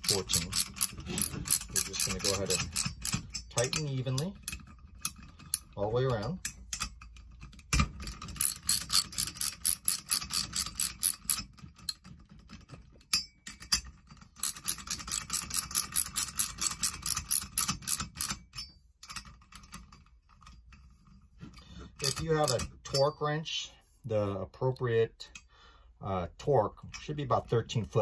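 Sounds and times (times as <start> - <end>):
ratchet wrench clicking: 0.0 - 5.7, 8.3 - 12.0, 14.4 - 19.3, 22.0 - 22.6.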